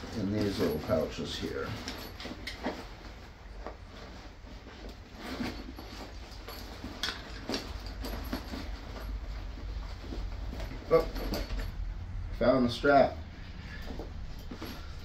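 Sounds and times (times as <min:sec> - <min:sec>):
fabric bag rustling: 0:00.0 - 0:12.0, 0:13.2 - 0:15.0
metal clicks and clinks: 0:10.6 - 0:11.9.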